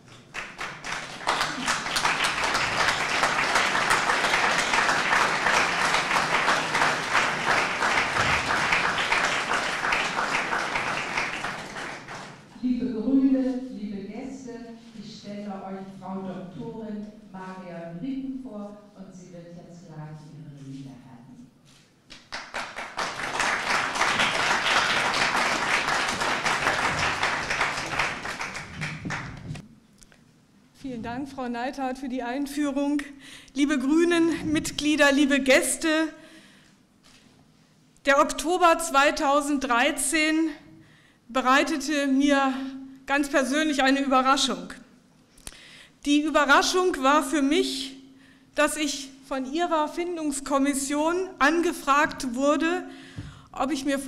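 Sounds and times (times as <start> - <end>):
audience applauding: 0.0 - 12.5, 22.1 - 29.6.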